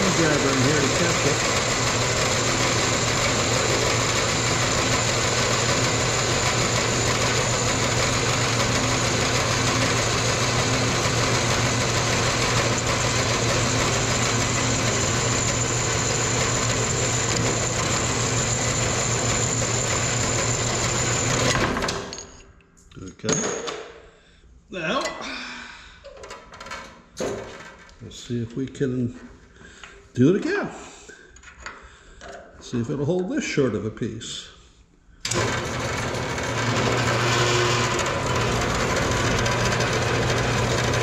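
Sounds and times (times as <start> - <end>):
bandsaw cutting metal: 0.0 - 22.2, 35.3 - 41.0
motor low hum: 0.2 - 21.9, 35.3 - 41.0.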